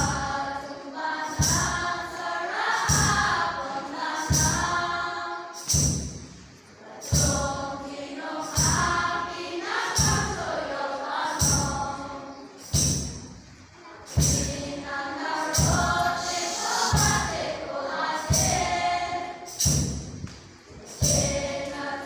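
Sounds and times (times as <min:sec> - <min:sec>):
children's choir singing: 0:00.0 - 0:05.9, 0:06.6 - 0:13.0, 0:13.7 - 0:22.0
steady beat: 0:12.6 - 0:22.0.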